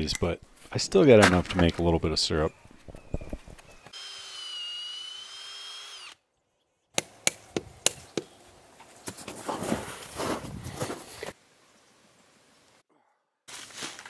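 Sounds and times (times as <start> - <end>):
cordless drill boring into wood: 3.9 - 6.2.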